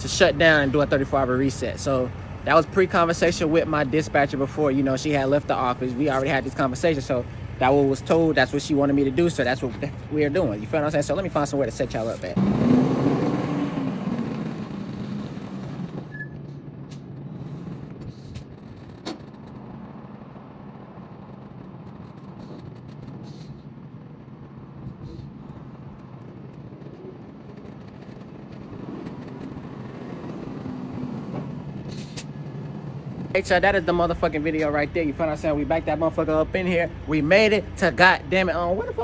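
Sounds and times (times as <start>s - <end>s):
diesel truck engine idling: 0.0s - 12.4s, 29.6s - 39.0s.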